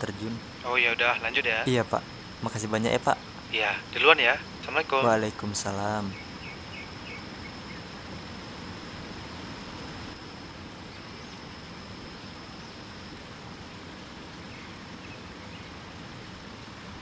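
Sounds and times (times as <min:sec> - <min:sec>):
high insect buzz: 0:00.0 - 0:16.4
faint bird chirps: 0:06.0 - 0:08.0.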